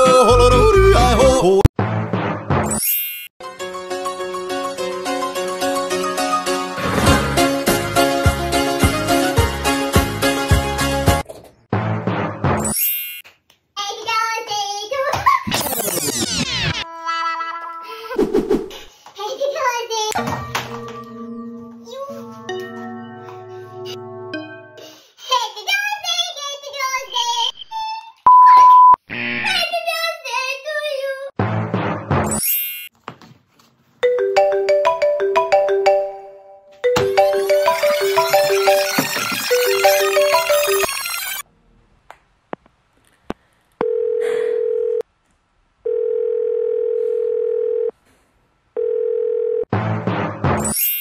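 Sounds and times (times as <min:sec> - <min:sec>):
high childlike voice talking: 0:13.8 - 0:15.6, 0:19.2 - 0:20.2, 0:21.8 - 0:22.4, 0:25.2 - 0:28.2, 0:29.4 - 0:31.4
loud censor beep: 0:28.3 - 0:29.0
telephone ringback tone: 0:43.8 - 0:45.0, 0:45.9 - 0:47.9, 0:48.8 - 0:49.7.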